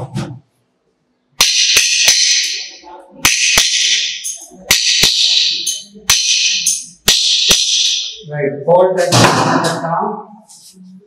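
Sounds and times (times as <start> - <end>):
hammer striking steel on anvil: 1.4 - 8.2.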